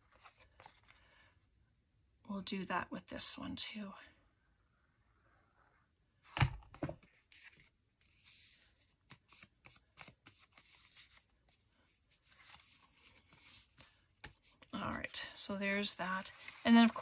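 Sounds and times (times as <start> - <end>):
paper rustling and scratching: 7.3 - 17.0.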